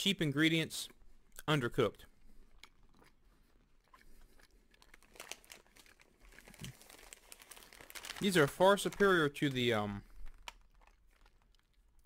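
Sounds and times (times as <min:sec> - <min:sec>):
plastic package crinkling: 0:04.7 - 0:12.0.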